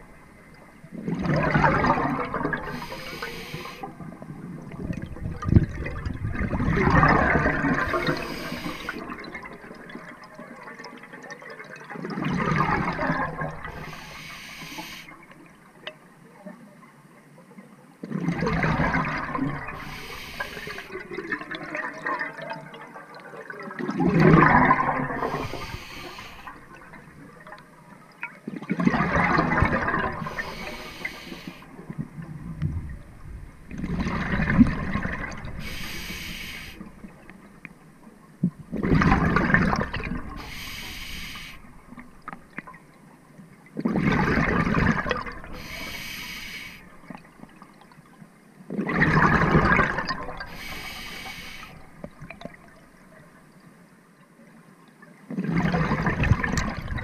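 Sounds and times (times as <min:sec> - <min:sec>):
exhaled bubbles underwater: 0:00.0 - 0:15.7, 0:18.0 - 0:43.0, 0:43.6 - 0:53.6, 0:55.3 - 0:57.0
regulator hiss: 0:02.7 - 0:03.9, 0:07.8 - 0:09.0, 0:13.7 - 0:15.1, 0:19.8 - 0:20.9, 0:25.2 - 0:26.7, 0:30.3 - 0:31.7, 0:35.6 - 0:36.9, 0:40.4 - 0:41.7, 0:45.6 - 0:47.0, 0:50.5 - 0:52.0.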